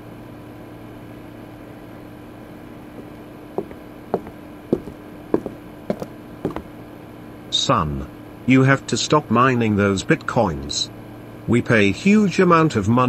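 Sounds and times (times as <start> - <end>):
machine hum: 1.9 - 7.0
hard footsteps: 2.9 - 6.8.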